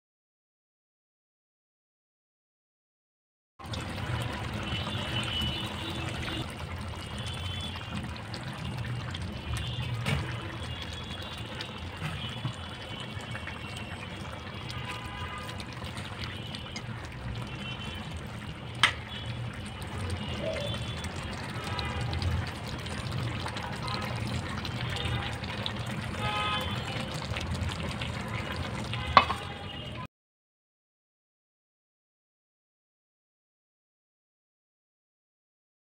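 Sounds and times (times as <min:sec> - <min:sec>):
curry bubbling in a pan: 0:03.6 - 0:30.1.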